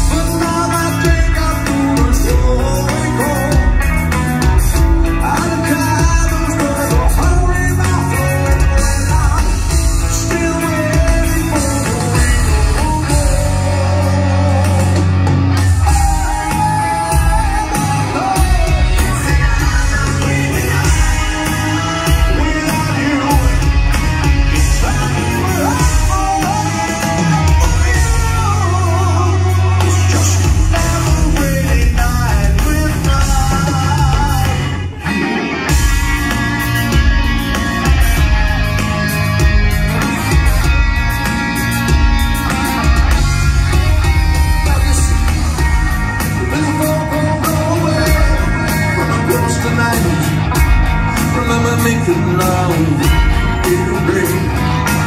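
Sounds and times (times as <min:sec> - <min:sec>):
drums: 0:00.0 - 0:55.0
electric guitars: 0:00.0 - 0:55.0
live rock band playing: 0:00.0 - 0:55.0
man singing lead: 0:00.0 - 0:55.0.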